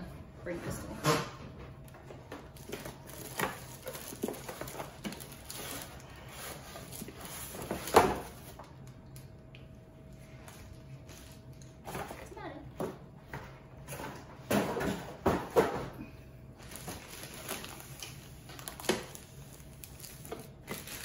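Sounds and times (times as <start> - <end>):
plastic wrapping rustling: 2.1 - 9.3, 16.6 - 21.0.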